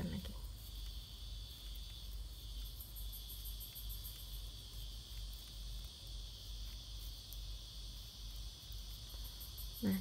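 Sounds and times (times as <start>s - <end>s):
faint low hum: 0.0s - 10.0s
insects chirring: 0.0s - 10.0s.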